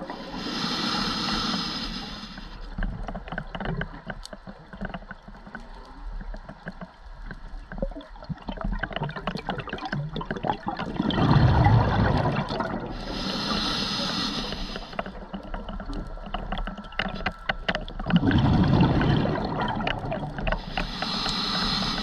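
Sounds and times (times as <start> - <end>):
regulator inhalation hiss: 0.0 - 2.7, 13.0 - 15.2, 20.6 - 22.0
small clicks and crackles: 0.0 - 22.0
gurgling rush of bubbles: 7.7 - 17.2, 17.9 - 22.0.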